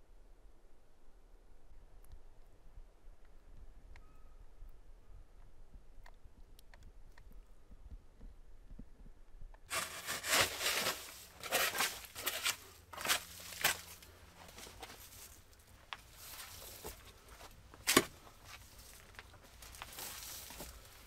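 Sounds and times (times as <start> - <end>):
shovel scraping dirt: 9.7 - 15.4, 17.8 - 19.0, 19.7 - 21.0.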